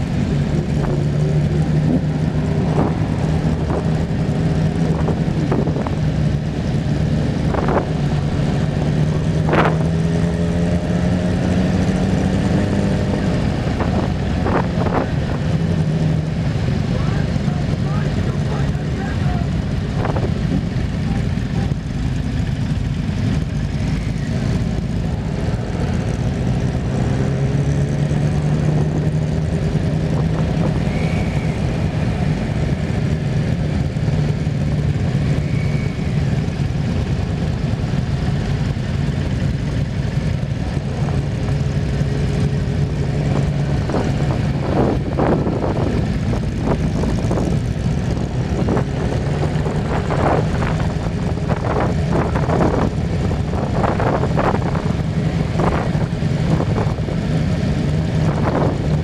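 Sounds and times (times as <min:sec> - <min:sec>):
wind noise: 0:00.0 - 0:06.5, 0:07.1 - 0:10.2, 0:11.7 - 0:16.2, 0:43.0 - 0:59.0
vehicle rumbling: 0:00.0 - 0:59.0.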